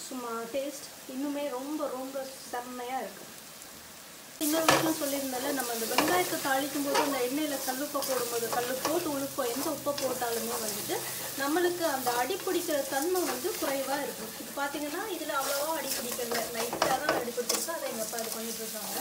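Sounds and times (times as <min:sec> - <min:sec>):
oil sizzling: 0:03.3 - 0:19.0
spatula knocking on pan: 0:04.6 - 0:05.0, 0:05.8 - 0:11.0, 0:15.9 - 0:18.0
spatula scraping pan: 0:04.6 - 0:19.0.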